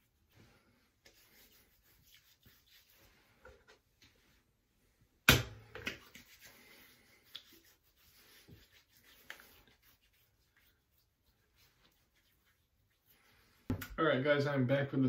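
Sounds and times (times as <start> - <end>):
hands rubbing skin: 0.0 - 4.2, 5.9 - 13.9.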